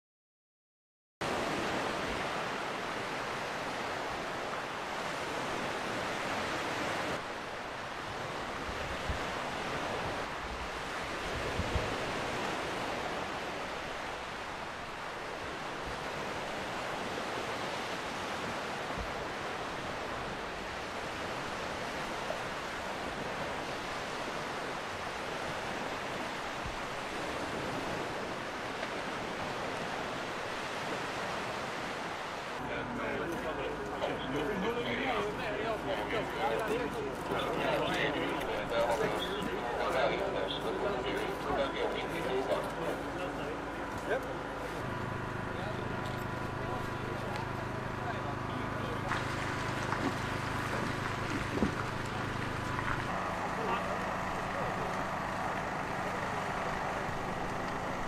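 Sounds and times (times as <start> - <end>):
surf washing onto shore: 1.2 - 58.0
wind on microphone: 1.3 - 32.6, 49.1 - 53.2.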